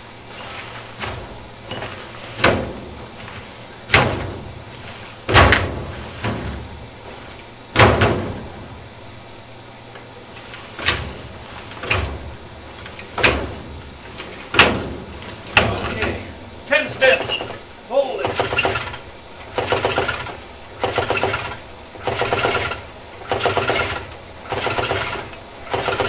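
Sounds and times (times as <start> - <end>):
engine clunks as propeller turned: 18.2 - 26.0.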